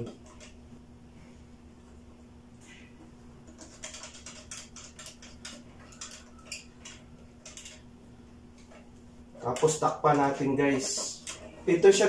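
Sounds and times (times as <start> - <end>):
screwdriver clicking and scraping: 3.5 - 7.9.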